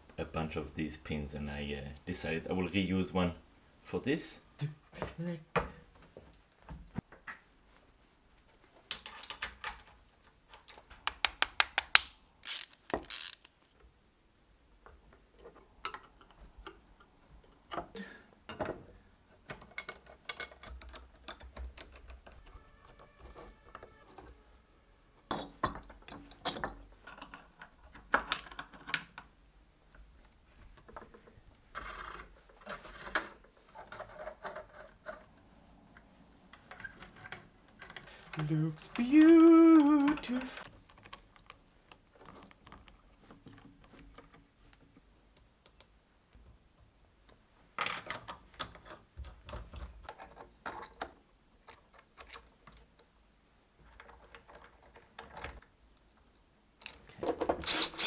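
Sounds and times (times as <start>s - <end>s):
clinks of small metal parts: 12.4s - 13.8s, 25.3s - 29.0s.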